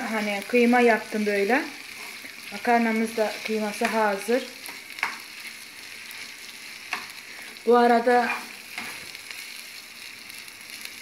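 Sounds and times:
minced meat sizzling in pan: 0.0s - 11.0s
spoon scraping and tapping pan: 4.6s - 5.3s.

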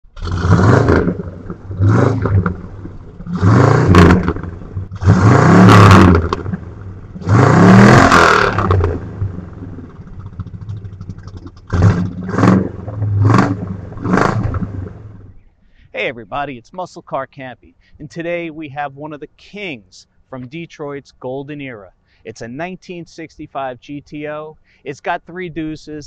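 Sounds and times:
car engine revving: 0.1s - 15.3s.

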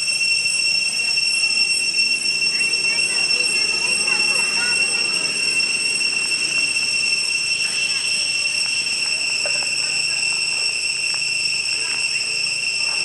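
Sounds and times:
high-pitched insect drone: 0.0s - 13.0s.

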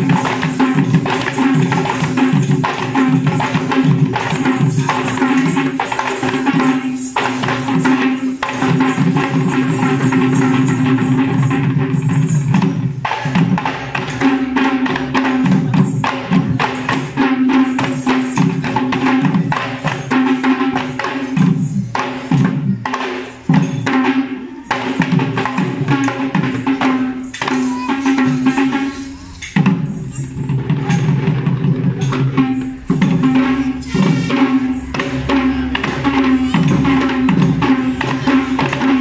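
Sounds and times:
drums beaten in dance rhythm: 0.0s - 39.0s
jingling hand percussion: 0.0s - 39.0s.

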